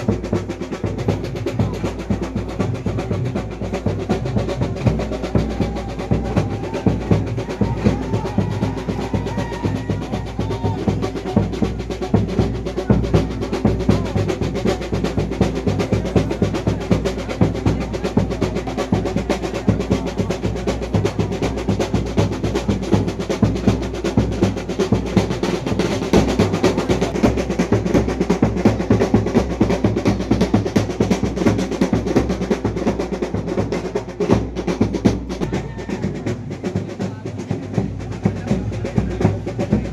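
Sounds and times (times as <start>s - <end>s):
fast drumming ensemble: 0.0s - 39.9s.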